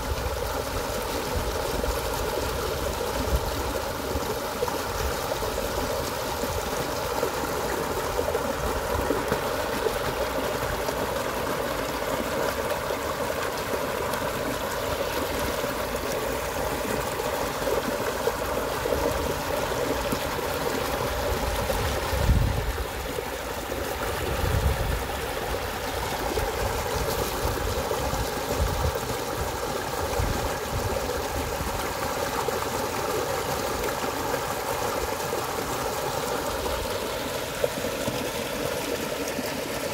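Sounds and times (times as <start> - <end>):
stream rushing and splashing: 0.0 - 39.9.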